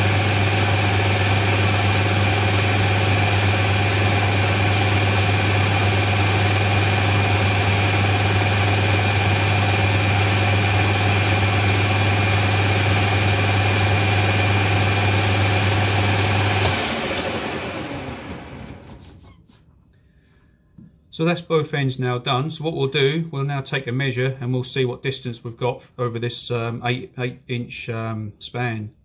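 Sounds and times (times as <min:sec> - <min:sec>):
metal lathe running: 0:00.0 - 0:18.8
lathe spindle winding down: 0:00.0 - 0:19.0.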